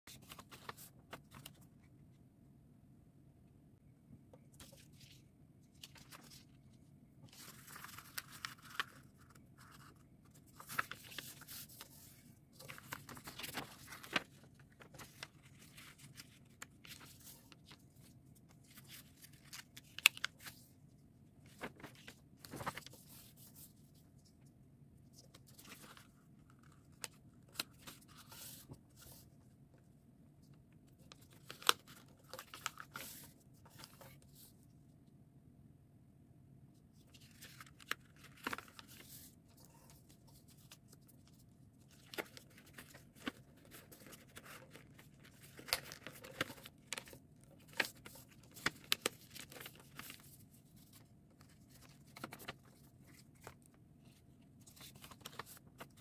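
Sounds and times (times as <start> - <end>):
paper rustling and crackling: 0.1 - 1.7, 7.3 - 20.7, 21.4 - 23.8, 31.0 - 34.5, 37.0 - 56.0.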